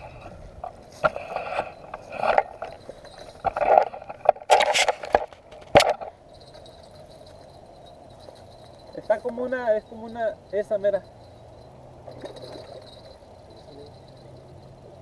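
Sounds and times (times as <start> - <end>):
handheld camera scraping and knocking: 0.0 - 7.4.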